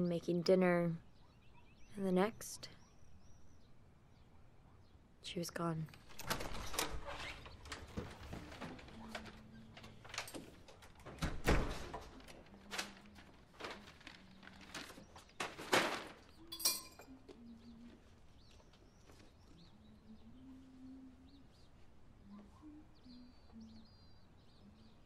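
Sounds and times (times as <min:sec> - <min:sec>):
faint bird chirps: 0:00.8 - 0:05.4, 0:16.3 - 0:25.0
front door thunking shut: 0:06.1 - 0:12.4.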